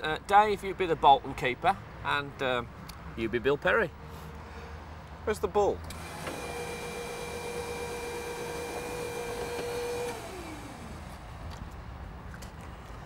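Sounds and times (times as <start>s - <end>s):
forklift motor whining: 5.9s - 11.2s.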